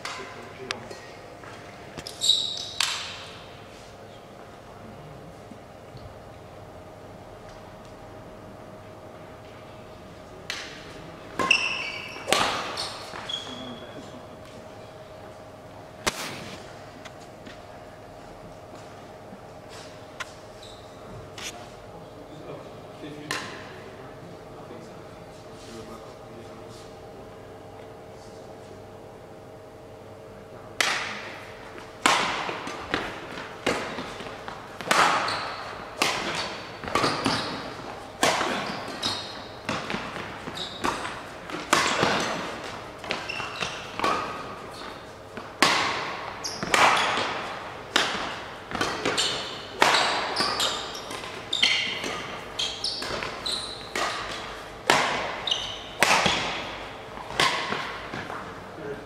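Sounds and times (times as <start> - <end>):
rackets hitting shuttlecock: 0.0 - 3.5, 10.4 - 13.9, 16.0 - 16.6, 30.8 - 58.6
shoe squeaks on court floor: 2.0 - 3.0, 11.4 - 14.1, 19.7 - 21.5, 35.0 - 37.8, 38.5 - 39.7, 40.4 - 41.1, 43.1 - 45.0, 46.4 - 47.3, 48.8 - 54.6, 55.3 - 56.4.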